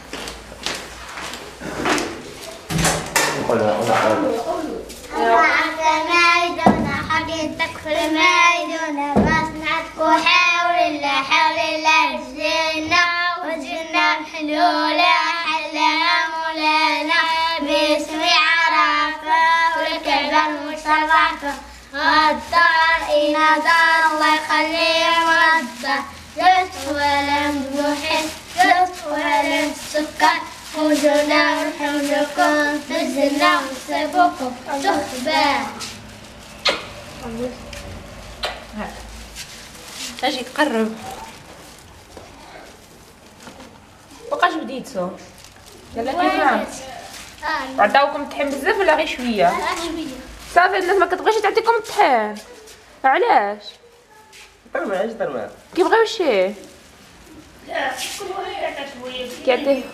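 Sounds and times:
boys singing a chant-like song: 4.0s - 36.1s.

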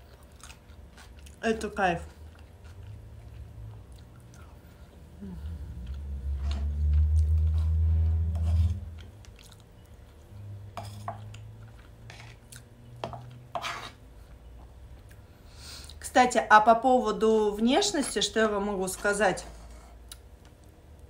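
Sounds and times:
chewing: 0.0s - 1.4s, 2.1s - 6.1s, 8.9s - 10.4s
low steady hum: 0.0s - 21.0s.

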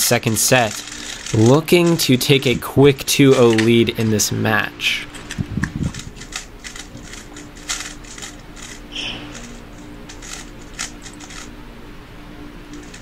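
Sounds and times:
speed cubes clicking: 0.2s - 3.9s, 5.2s - 11.5s.

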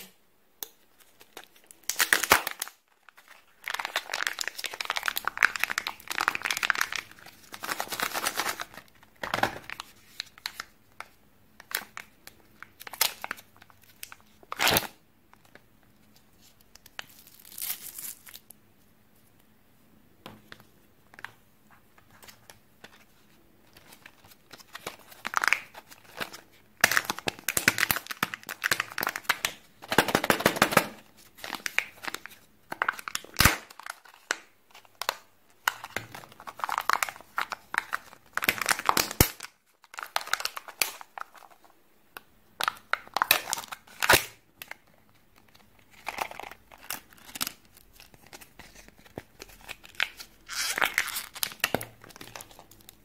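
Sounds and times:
plastic foil wrappers crinkling: 0.9s - 10.7s, 22.2s - 41.7s, 42.6s - 53.0s.

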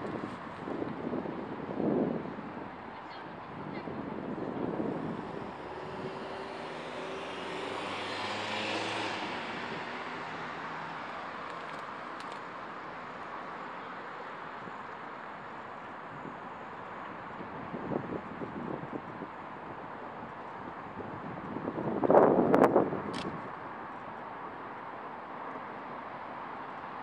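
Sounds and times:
highway road noise: 0.0s - 27.0s
vehicle engine passing: 5.2s - 11.1s.

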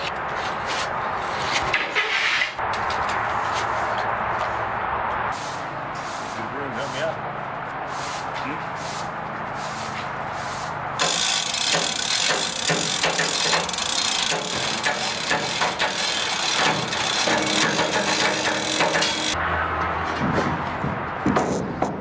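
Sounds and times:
hoist chain rattling: 11.0s - 19.4s
hoist mechanism clicking: 11.0s - 19.4s.

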